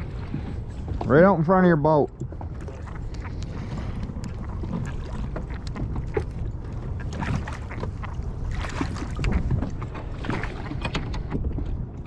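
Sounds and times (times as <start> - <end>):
water splashing around a kayak: 0.0 - 12.0
wind buffeting microphone: 0.0 - 12.0.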